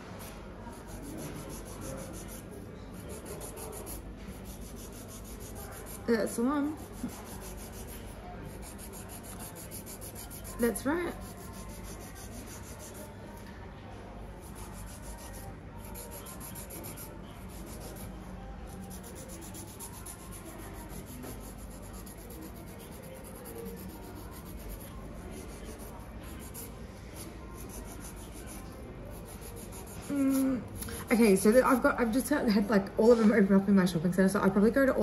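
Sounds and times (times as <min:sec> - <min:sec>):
fingernails being filed: 0:00.7 - 0:13.1, 0:14.4 - 0:18.1, 0:18.8 - 0:31.0.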